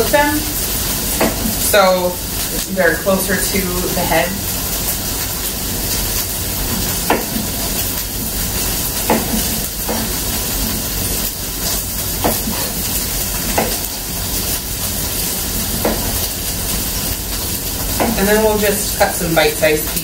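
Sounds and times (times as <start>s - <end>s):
steady hiss: 0.0s - 20.0s
knife chopping on cutting board: 1.2s - 1.5s, 7.1s - 7.5s, 9.0s - 10.2s, 12.2s - 12.8s, 13.5s - 13.9s, 15.8s - 16.2s.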